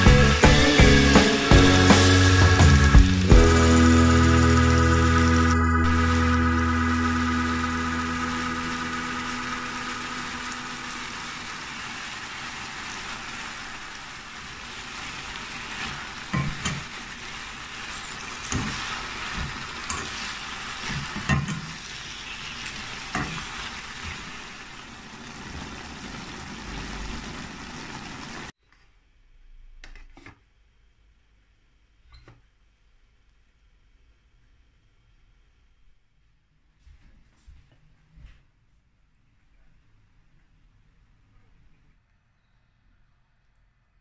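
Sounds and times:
cabbage sizzling in a wok: 0.0s - 28.5s.

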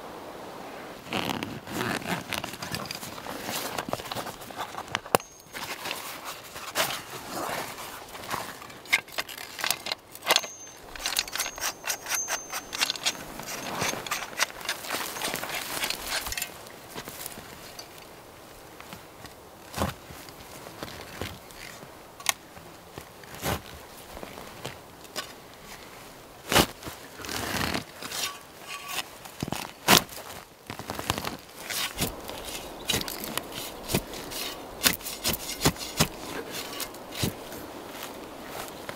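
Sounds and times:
backpack fabric rustling: 1.0s - 17.9s, 22.9s - 38.9s
footsteps through undergrowth: 1.1s - 38.9s
metal tool clicking and clinking: 5.1s - 5.9s, 8.7s - 16.6s, 28.1s - 29.0s.

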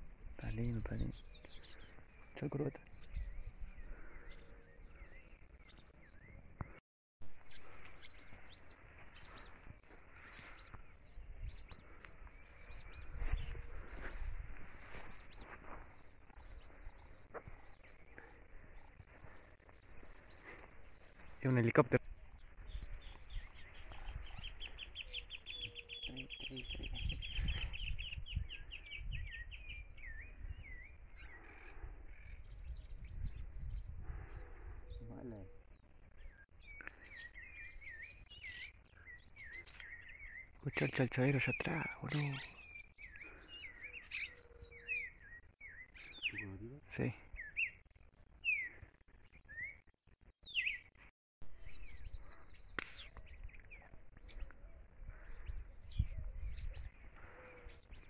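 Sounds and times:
songbirds chirping: 0.0s - 58.0s
wind rumble on microphone: 2.9s - 4.2s, 10.8s - 15.4s, 22.0s - 25.6s, 26.4s - 35.4s, 51.6s - 58.0s
songbird trilling: 22.8s - 30.8s.

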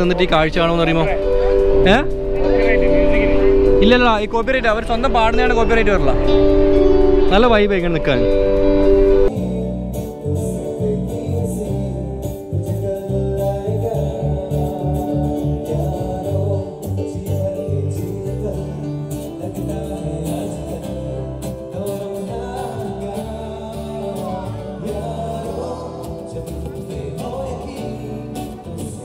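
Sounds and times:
keyboard: 0.0s - 29.0s
man singing: 1.8s - 4.2s, 9.3s - 29.0s
bass beat: 9.3s - 29.0s.

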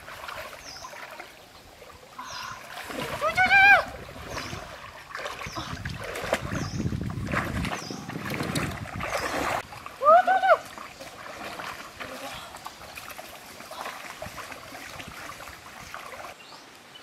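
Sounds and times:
water splashing and swishing: 0.0s - 16.6s.

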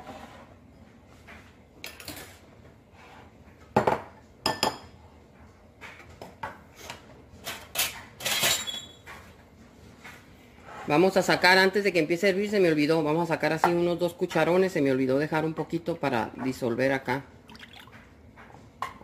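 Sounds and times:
utensils and dishes clattering: 1.8s - 2.4s, 6.8s - 9.4s.

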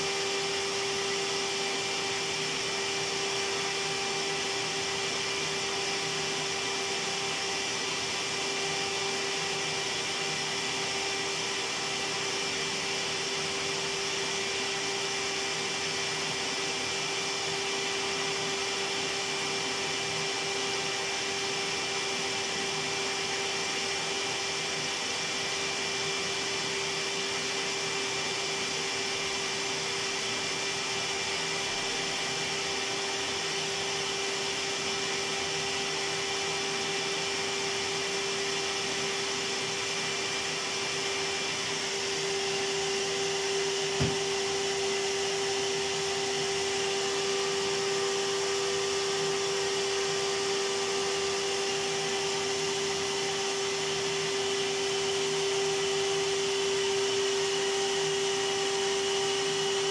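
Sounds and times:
vacuum cleaner running: 0.0s - 59.9s.

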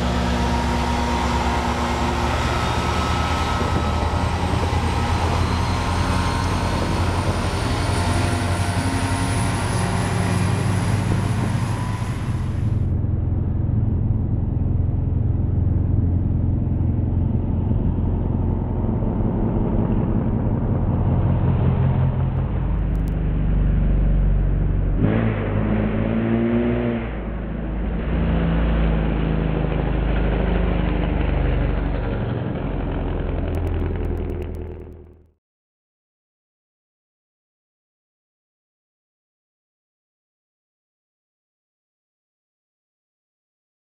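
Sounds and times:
motorcycle engine revving: 0.0s - 12.9s, 33.4s - 35.3s
train rumbling past: 0.0s - 13.5s.

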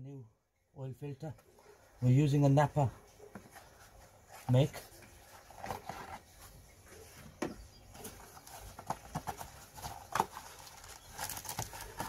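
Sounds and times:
knocks and clicks of unpacking: 7.4s - 12.0s.

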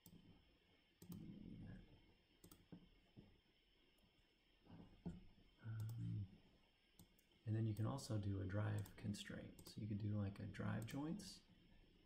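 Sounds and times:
computer mouse clicks: 0.0s - 0.3s, 1.0s - 1.4s, 2.4s - 2.9s, 5.7s - 6.1s, 7.0s - 7.9s, 8.7s - 9.8s, 10.8s - 11.0s.

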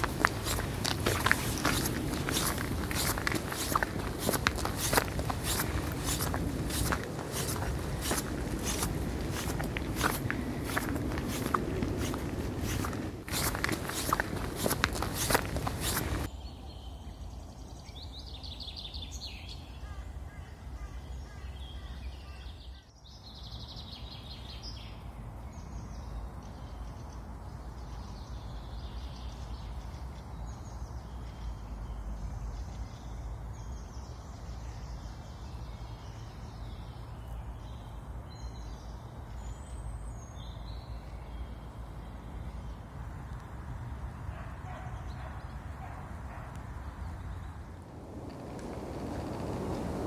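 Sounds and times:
small birds chirping: 0.0s - 50.0s
low background rumble: 47.4s - 50.0s.

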